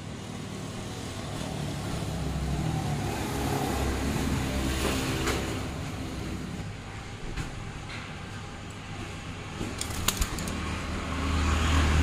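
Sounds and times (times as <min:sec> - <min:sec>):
sharp clicks: 0:09.8 - 0:10.6.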